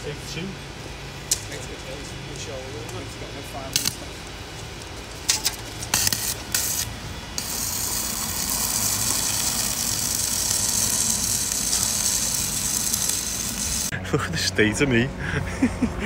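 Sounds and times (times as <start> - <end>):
welding arc hissing: 3.7 - 4.0, 4.8 - 13.9.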